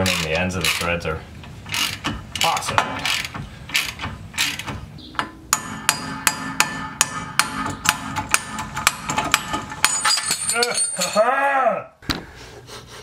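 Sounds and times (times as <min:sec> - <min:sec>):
wrench turning a bolt: 0:00.0 - 0:01.0, 0:01.6 - 0:04.8
ringing hammer blows on metal: 0:05.2 - 0:11.2.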